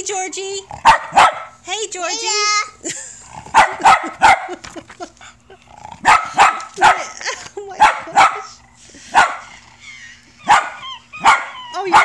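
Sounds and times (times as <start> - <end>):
dog barking sharply: 0.8 - 1.6, 3.5 - 4.6, 6.0 - 7.1, 10.5 - 12.0.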